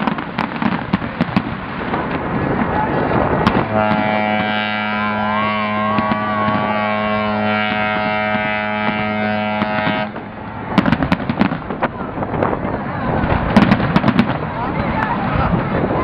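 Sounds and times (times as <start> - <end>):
fireworks crackling and banging: 0.0 - 16.0
ship's horn blast: 3.5 - 10.7.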